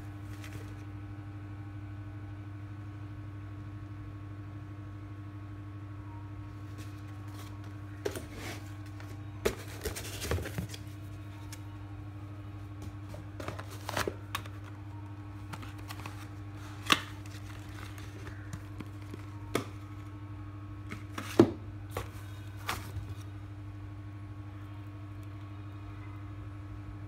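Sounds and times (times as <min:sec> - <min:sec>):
steady low hum: 0:00.0 - 0:27.0
foam and cardboard rustling: 0:06.7 - 0:11.6, 0:20.9 - 0:23.2.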